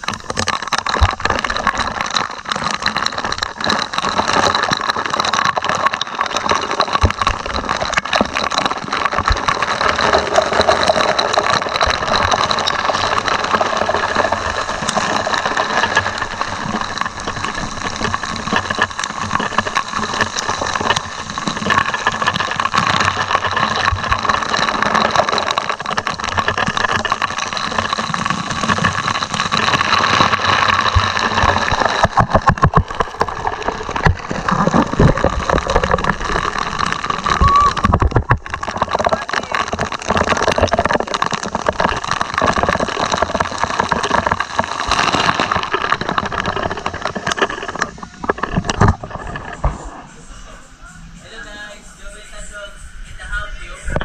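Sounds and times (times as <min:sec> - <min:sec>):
droplets crackling: 0:00.0 - 0:54.0
machinery hum: 0:48.8 - 0:54.0.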